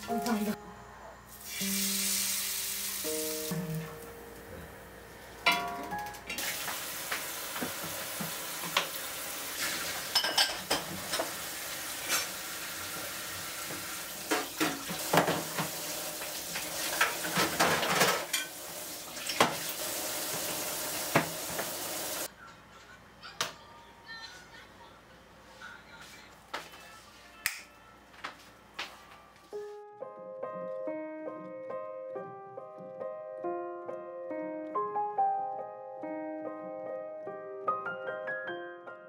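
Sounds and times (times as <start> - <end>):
frying-like hiss: 1.3 - 4.0, 6.3 - 10.2, 10.8 - 22.3
dishes and cutlery clinking: 9.6 - 11.4, 16.8 - 18.6.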